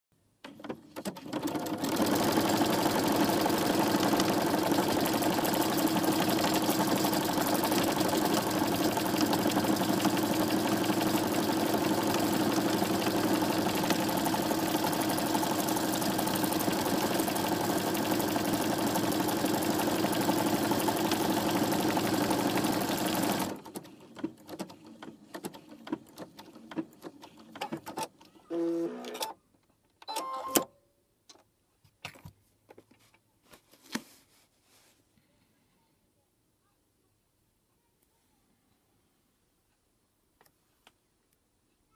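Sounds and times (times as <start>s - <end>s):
sewing machine stitching: 0.4s - 29.4s.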